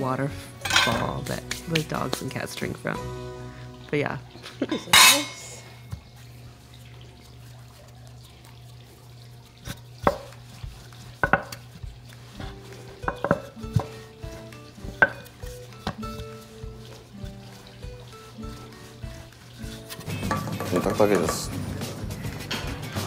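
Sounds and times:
water fountain humming: 0:00.0 - 0:22.9
soft background music: 0:00.0 - 0:23.0
rolling pin on wooden board: 0:09.6 - 0:17.7.

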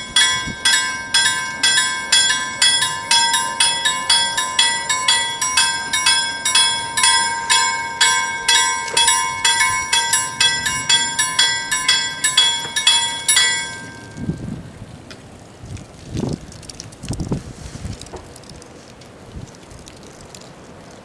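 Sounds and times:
level crossing bells ringing: 0:00.0 - 0:14.5.

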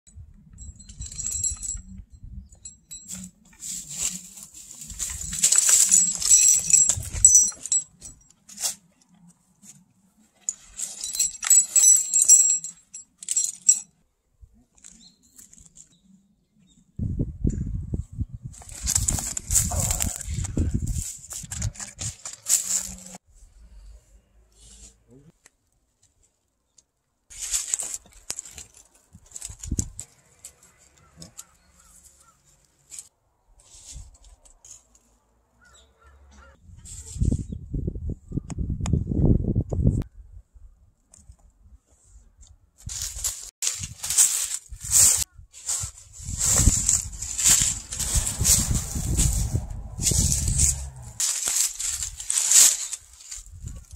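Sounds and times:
metal climbing gear jingling: 0:00.4 - 0:14.0, 0:18.6 - 0:23.2, 0:27.3 - 0:33.1, 0:42.9 - 0:53.9.

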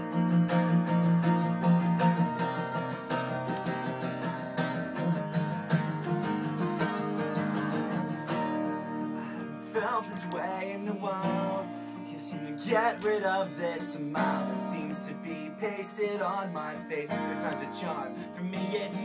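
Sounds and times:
acoustic guitars strumming: 0:00.0 - 0:19.0
person singing: 0:08.6 - 0:19.0.

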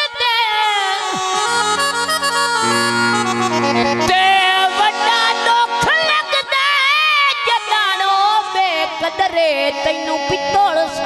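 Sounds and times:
accompaniment playing held chords: 0:00.9 - 0:10.7.

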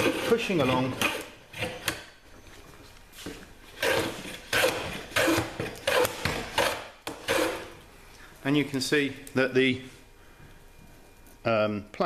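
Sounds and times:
hand plane scraping wood: 0:00.0 - 0:01.9, 0:03.8 - 0:07.7.

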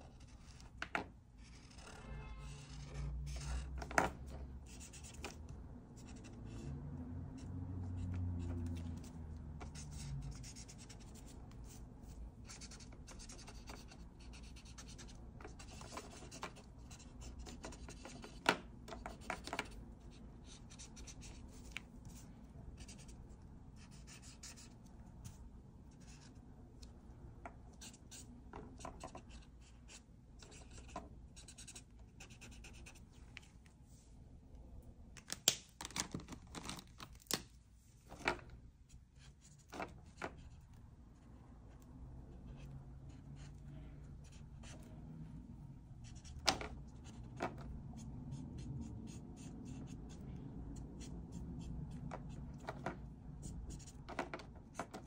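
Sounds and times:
marker scratching on paper: 0:00.0 - 0:00.7, 0:01.4 - 0:05.4, 0:06.0 - 0:06.7, 0:07.4 - 0:26.4, 0:27.7 - 0:33.2, 0:42.5 - 0:43.6, 0:44.2 - 0:45.0, 0:46.0 - 0:52.8, 0:53.4 - 0:55.0.

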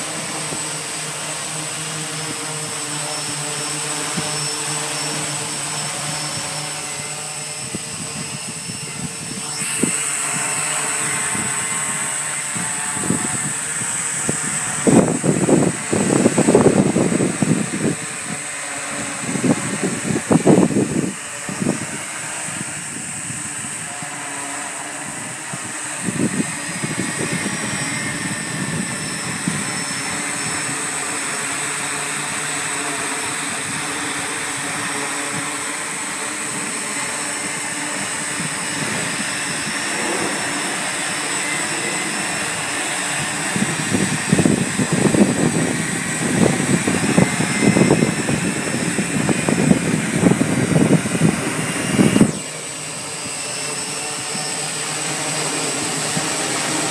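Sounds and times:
drone propellers humming: 0:00.0 - 0:56.9.

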